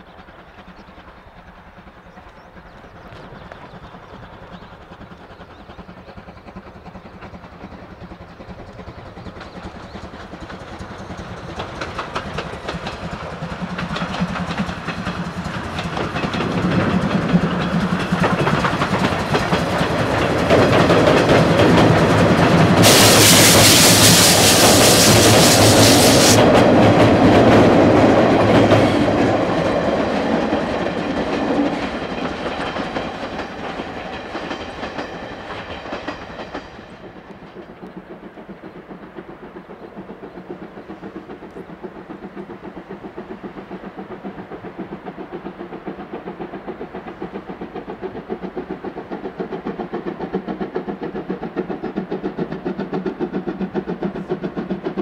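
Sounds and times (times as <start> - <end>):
steam locomotive hauling train: 0.0 - 55.0
loud steam hiss: 21.6 - 26.6.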